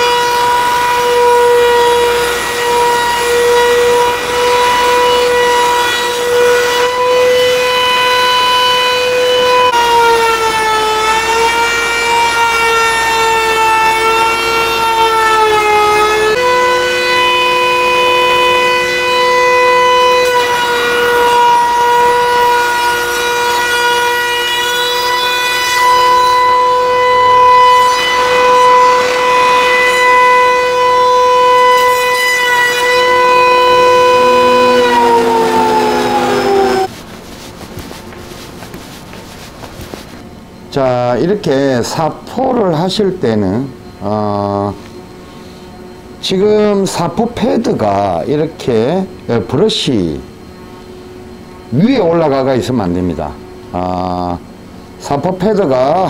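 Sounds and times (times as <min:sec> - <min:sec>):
cutter head high-pitched whine: 0:15.6 - 0:37.0, 0:37.8 - 0:56.0
lower machine tone: 0:25.8 - 0:56.0.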